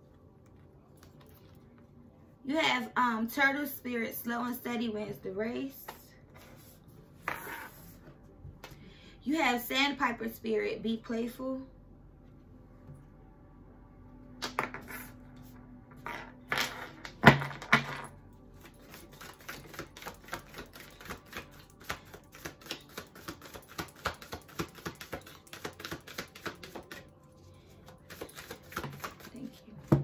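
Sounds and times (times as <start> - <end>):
cards clicking while shuffled: 18.6 - 27.0, 27.9 - 29.5
cards tapping: 18.8 - 27.0, 28.1 - 30.0.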